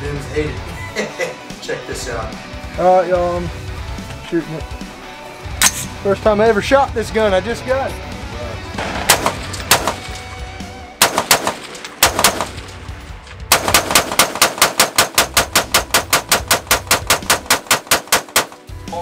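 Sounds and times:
rifle shots: 8.8s - 10.2s, 11.0s - 18.7s.

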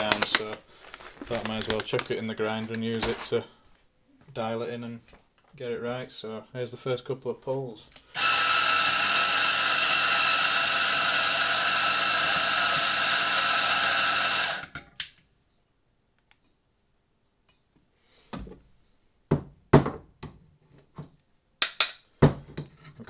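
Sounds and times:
coffee grinder motor running: 8.2s - 14.8s.

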